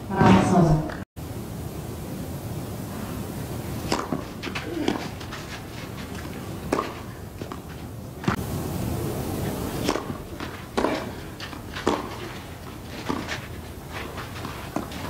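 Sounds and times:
racket striking tennis ball: 3.8s - 8.4s, 9.8s - 15.0s.

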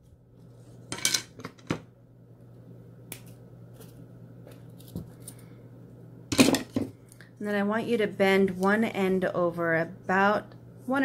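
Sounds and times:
wire clicks and rustles: 3.1s - 5.5s.

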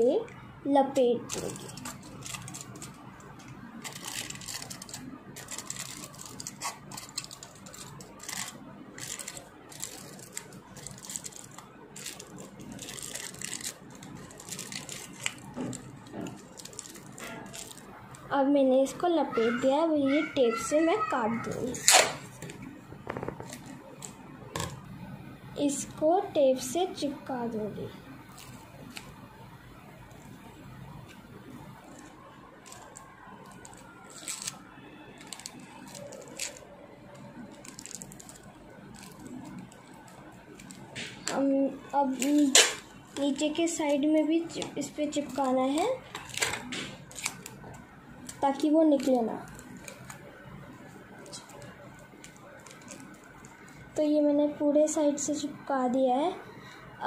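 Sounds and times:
foil crinkling: 1.2s - 3.0s, 3.6s - 18.3s, 31.8s - 41.3s, 45.0s - 50.2s, 51.2s - 53.7s.

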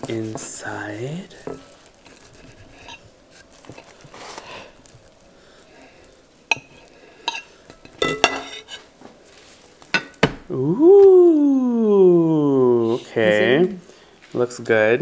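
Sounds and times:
knife scraping ceramic plate: 1.5s - 3.4s, 6.5s - 8.9s.

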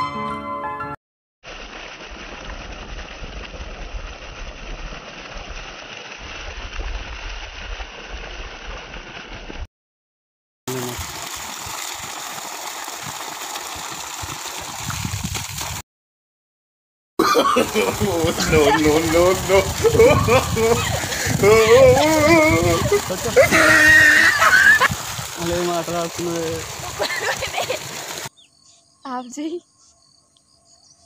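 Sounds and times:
water gushing from a pipe: 1.4s - 9.7s, 10.7s - 15.8s, 17.3s - 28.3s
hands splashing in water: 17.6s - 28.3s.

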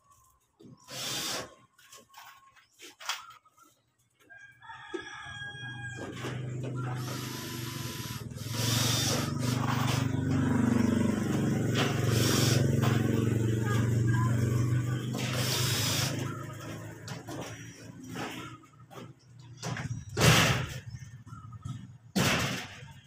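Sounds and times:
rooster crowing: 4.3s - 7.2s.

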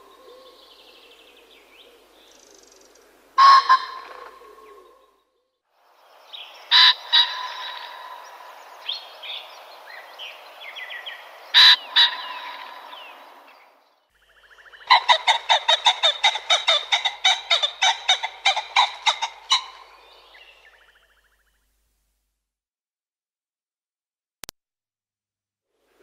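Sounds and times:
pheasant calling: 0.0s - 5.2s, 6.2s - 21.8s.

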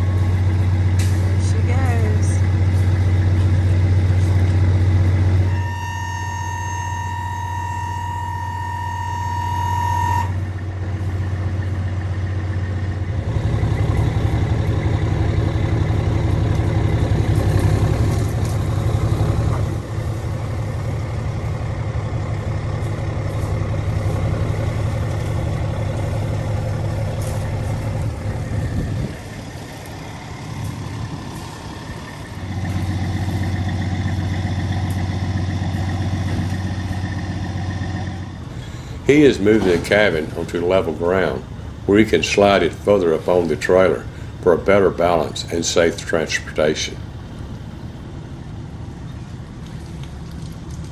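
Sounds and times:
truck diesel engine under load: 0.0s - 50.9s
high electronic tone: 5.5s - 10.4s.

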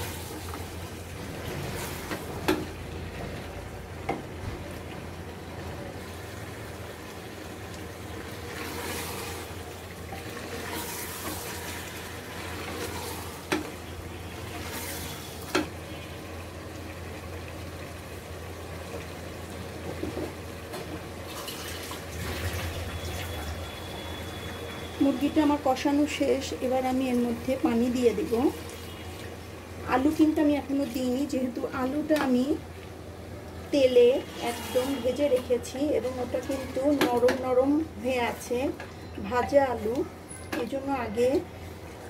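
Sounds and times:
chicken sizzling in a pot: 0.0s - 42.0s.

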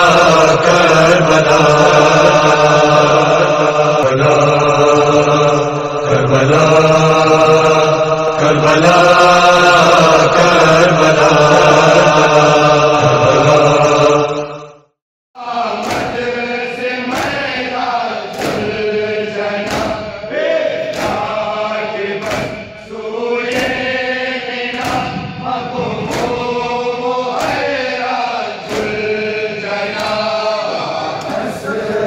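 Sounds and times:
crowd of men chanting: 0.0s - 14.7s, 15.4s - 32.0s
hands slapping chests: 15.8s - 16.3s, 17.1s - 17.5s, 18.3s - 18.8s, 19.6s - 20.1s, 20.8s - 21.4s, 22.2s - 22.7s, 23.5s - 23.9s, 24.7s - 25.2s, 26.1s - 26.6s, 27.3s - 27.8s, 28.6s - 29.2s, 29.9s - 30.3s.

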